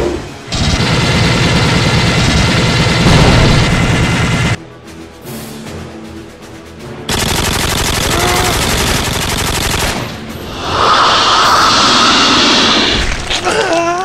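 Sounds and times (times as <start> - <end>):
rapid automatic gunfire: 0.5 - 4.6, 7.1 - 10.2
harsh alien screech: 10.5 - 13.3.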